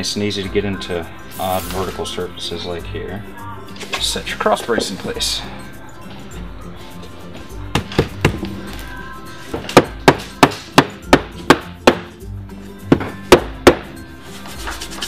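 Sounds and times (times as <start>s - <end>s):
rubber mallet knocking wood: 7.7s - 8.5s, 9.6s - 12.1s, 12.9s - 13.9s.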